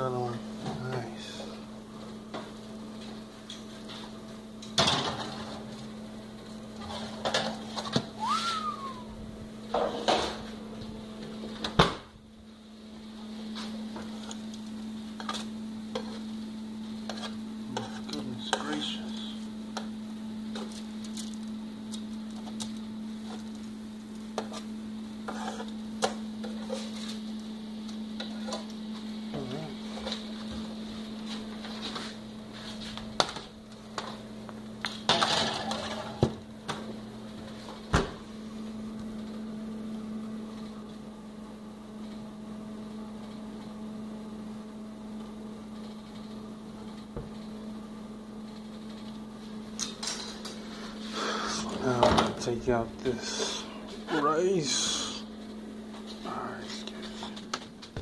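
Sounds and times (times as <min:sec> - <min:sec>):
steady appliance hum: 0:00.0 - 0:58.0
oven door shutting: 0:11.5 - 0:12.2, 0:37.8 - 0:38.3.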